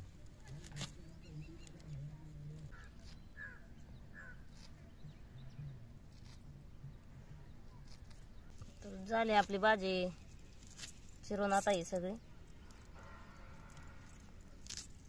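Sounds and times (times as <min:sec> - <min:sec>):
faint low murmur: 0:00.0 - 0:09.0
knife cutting leaves: 0:06.1 - 0:06.5.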